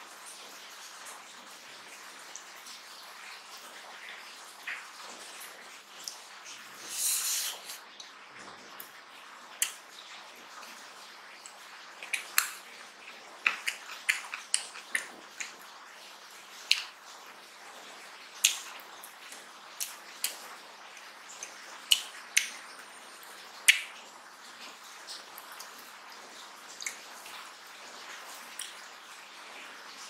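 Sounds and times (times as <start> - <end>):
fingers working saucy food: 6.0 - 7.8, 11.4 - 15.7
wet chewing smacks: 11.5 - 15.6.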